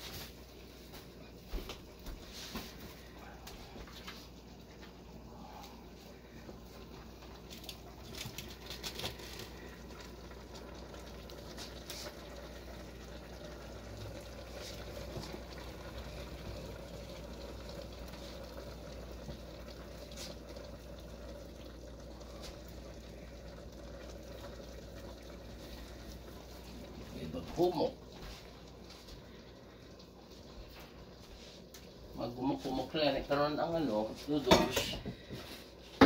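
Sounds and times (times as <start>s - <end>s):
broth bubbling in a skillet: 0.0s - 36.0s.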